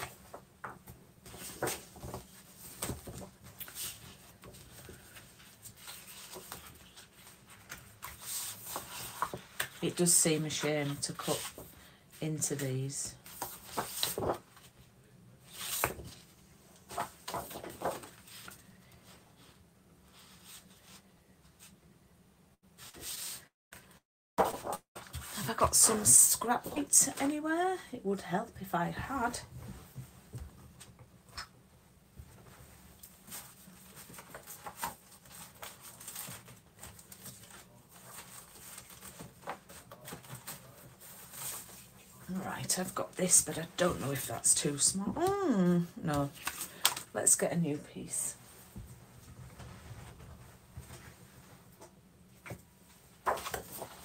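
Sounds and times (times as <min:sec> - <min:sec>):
paper rustling: 0:00.0 - 0:11.7, 0:13.2 - 0:14.7, 0:15.4 - 0:19.5, 0:24.4 - 0:27.4, 0:33.0 - 0:43.4, 0:46.2 - 0:47.0, 0:52.4 - 0:54.0
paper rustling and swishing: 0:01.2 - 0:11.7, 0:13.2 - 0:14.7, 0:22.8 - 0:23.5.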